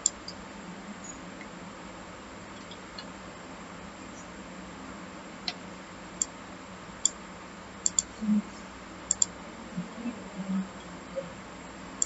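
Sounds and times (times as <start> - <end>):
computer mouse clicking: 7.9 - 8.1, 9.1 - 9.3.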